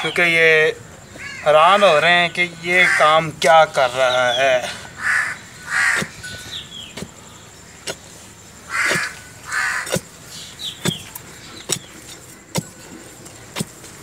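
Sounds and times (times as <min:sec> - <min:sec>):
crow cawing: 0:01.2 - 0:01.6, 0:02.7 - 0:03.2, 0:04.6 - 0:06.2, 0:08.7 - 0:10.0
digging tool striking hard soil: 0:06.9 - 0:07.2, 0:07.8 - 0:08.1, 0:08.8 - 0:09.2, 0:09.8 - 0:10.1, 0:10.8 - 0:14.0.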